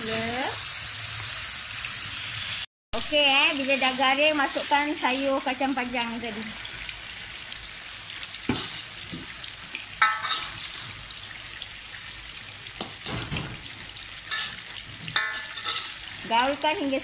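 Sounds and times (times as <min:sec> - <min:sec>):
beans sizzling in a wok: 0:00.0 - 0:17.0
metal spatula scraping a wok: 0:10.0 - 0:11.0, 0:14.3 - 0:16.2.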